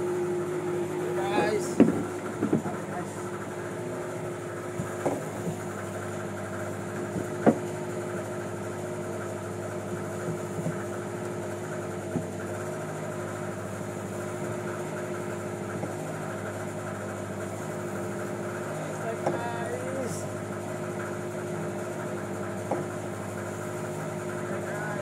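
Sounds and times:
boat engine running: 0.0 - 25.0
sharp knocks: 1.7 - 2.8, 7.1 - 7.7.

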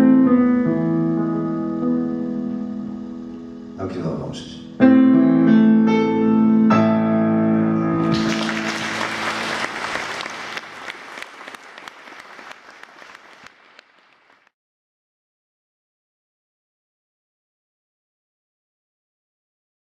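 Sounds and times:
audience applause: 8.0 - 14.5.

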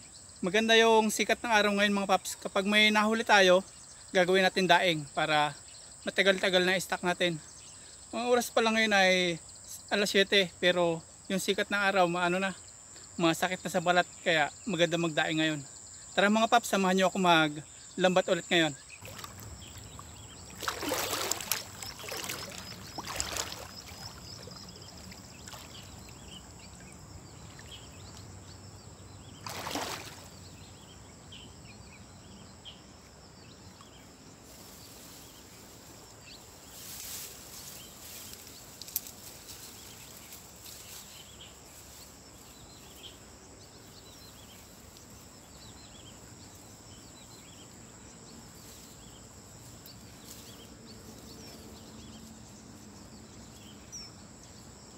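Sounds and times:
water splashing and sloshing: 19.0 - 26.2, 29.4 - 30.5.

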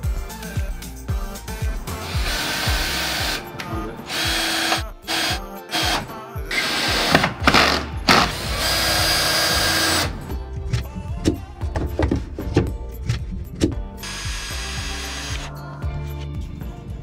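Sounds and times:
background music: 0.0 - 17.0
cordless drill driving screws: 2.0 - 10.2, 14.0 - 15.5.

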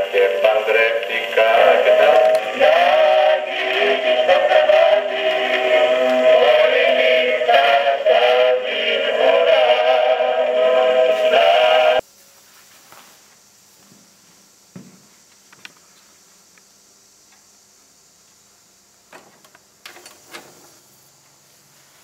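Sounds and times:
man singing on gramophone record: 0.0 - 12.0.

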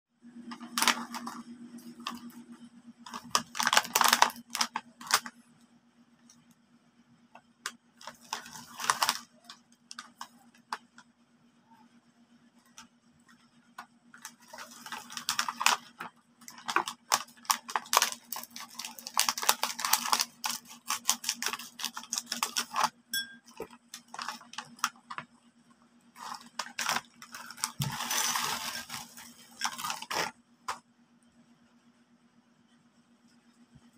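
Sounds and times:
faint steady hum: 0.1 - 33.9
snack bag crinkling: 0.5 - 2.4, 3.1 - 5.4, 8.0 - 11.0, 14.2 - 22.9, 23.5 - 25.3, 26.2 - 30.4
crisps clattering into a bowl: 26.2 - 30.3.

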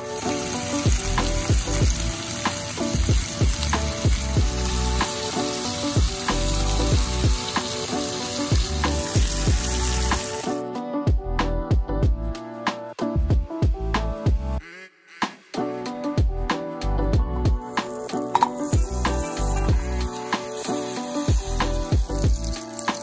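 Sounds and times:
steaks sizzling in skillet: 0.0 - 10.6, 17.6 - 23.0
background music with beat: 0.0 - 23.0.

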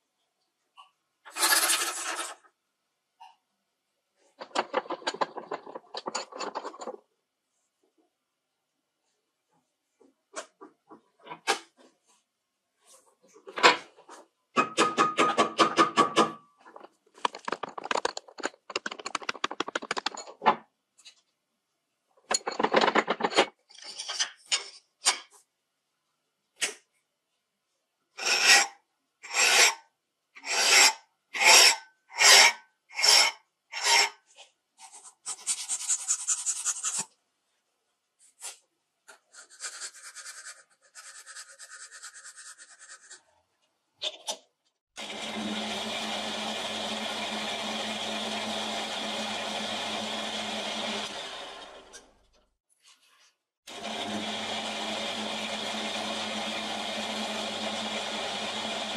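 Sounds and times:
file rasping on steel: 28.2 - 29.8, 30.4 - 34.2.

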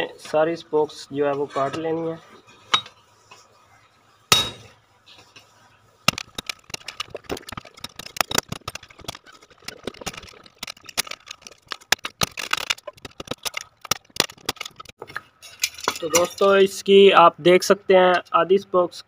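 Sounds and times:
hammer striking metal spokes: 4.3 - 4.7.

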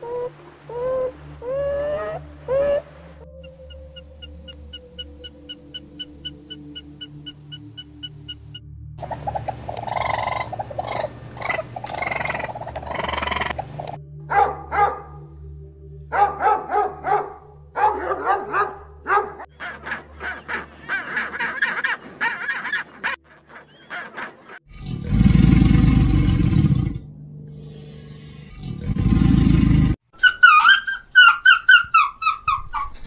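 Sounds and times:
penguins calling: 0.0 - 14.0, 19.4 - 24.6.

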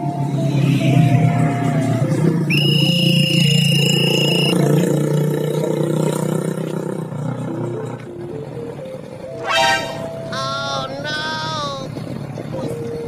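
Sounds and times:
high whistle blast: 2.5 - 4.6, 9.4 - 10.4
background music: 8.0 - 13.0
car passing: 9.3 - 10.7.

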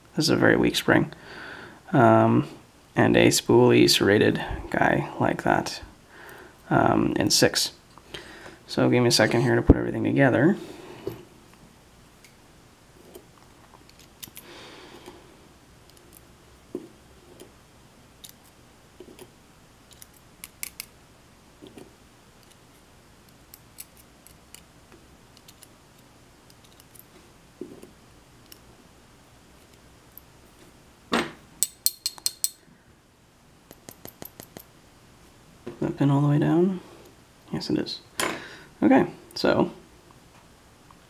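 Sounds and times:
metallic clicks of tweezers and pins: 31.6 - 32.6, 33.7 - 34.7.

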